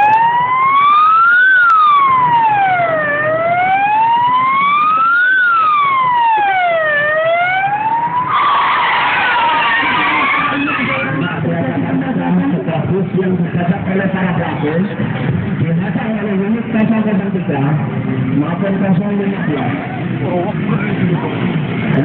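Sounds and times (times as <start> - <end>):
wailing vehicle siren: 0.0 - 11.1.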